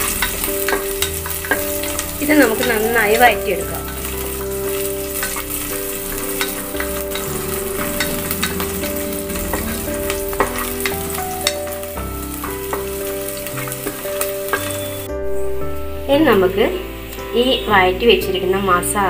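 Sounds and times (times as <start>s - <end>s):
spatula scraping and tapping pot: 0.0s - 15.0s
onions sizzling in a pot: 0.0s - 19.0s.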